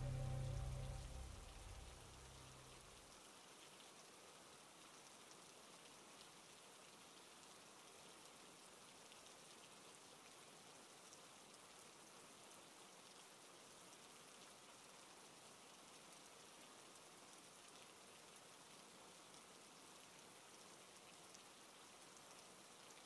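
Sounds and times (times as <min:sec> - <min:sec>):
rain hissing: 0:00.0 - 0:02.6.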